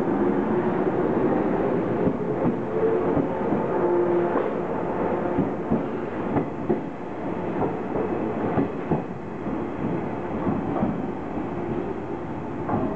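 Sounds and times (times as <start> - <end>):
train wheels clacking on rail joints: 5.3 - 6.9, 7.5 - 11.1, 12.6 - 12.9.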